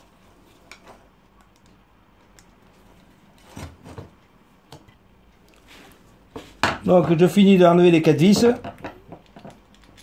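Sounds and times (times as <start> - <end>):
screwdriver metal clicks and scraping: 9.2 - 10.0.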